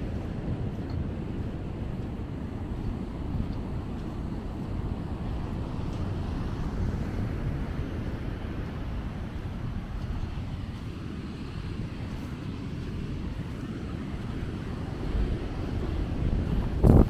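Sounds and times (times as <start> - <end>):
ocean surf: 0.0 - 17.0
wind rumble on microphone: 0.0 - 17.0.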